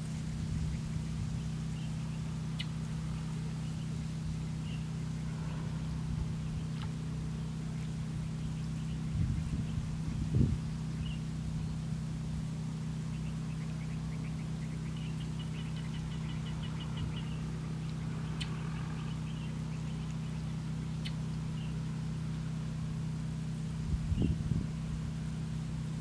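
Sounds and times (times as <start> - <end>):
distant motor humming: 0.0 - 26.0
high bird chirps: 13.1 - 21.8.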